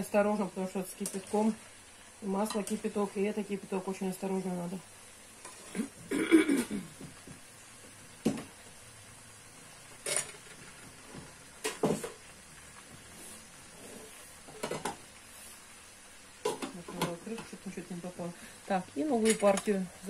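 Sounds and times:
low hiss: 0.0s - 20.0s
cough-like sound: 5.7s - 7.0s.

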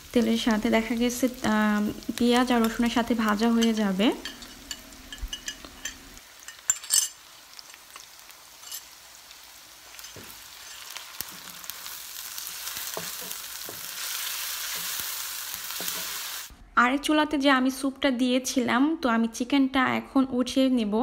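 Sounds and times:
food sizzling in oil: 0.0s - 16.5s.

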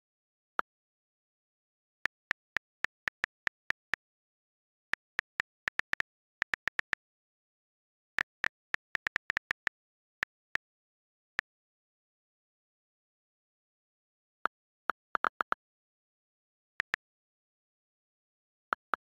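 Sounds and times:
on-screen keyboard clicks: 2.1s - 4.0s, 5.0s - 7.0s, 8.2s - 10.6s.

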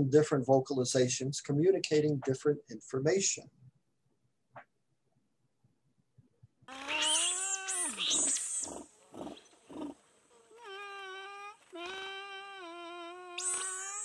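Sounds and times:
otter calling: 6.7s - 14.0s
otter huffs: 8.2s - 10.0s.

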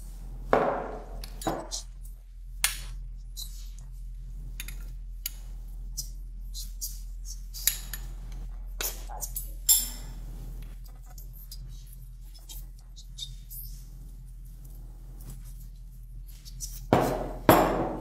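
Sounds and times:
glass bowl knocking on wooden worktop: 0.6s - 1.7s.

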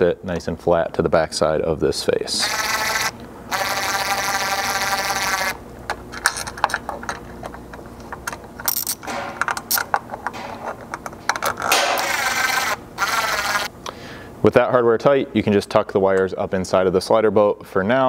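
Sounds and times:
drill-driver whining: 2.4s - 5.6s, 12.0s - 13.7s.

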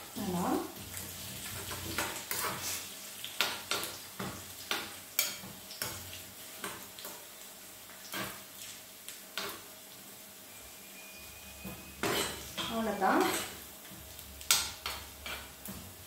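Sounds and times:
faint oil sizzle: 0.0s - 16.0s
metal spoon scraping a pan: 1.4s - 3.9s, 10.9s - 13.6s.

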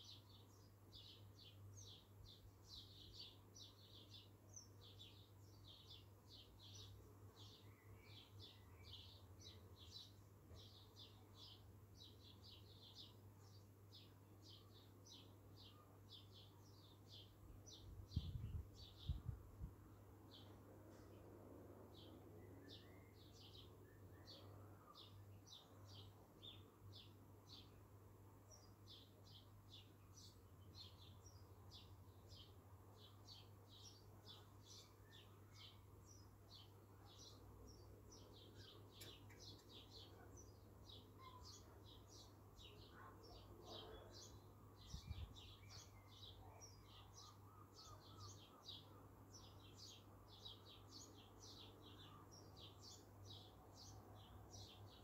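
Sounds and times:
birds chirping: 21.9s - 55.0s.

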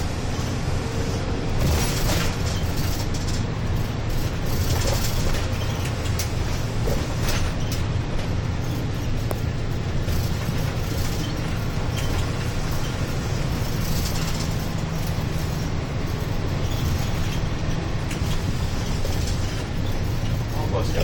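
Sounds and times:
bus engine drone: 0.0s - 21.0s
road noise: 0.0s - 21.0s.

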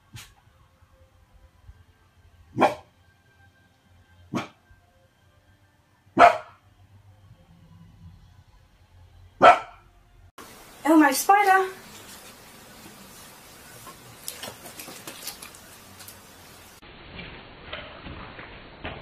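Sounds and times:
puppy barking: 2.6s - 2.9s, 6.2s - 6.6s, 9.4s - 9.8s.

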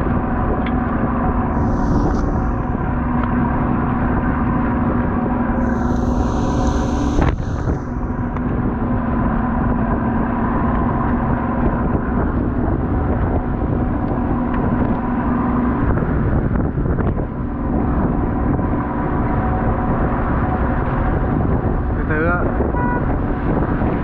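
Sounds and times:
boat engine humming: 0.0s - 10.4s.

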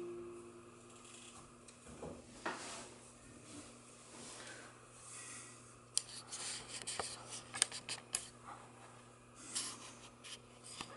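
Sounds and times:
faint low hum: 0.0s - 10.9s
sharp clicks and rubs: 6.0s - 8.3s.

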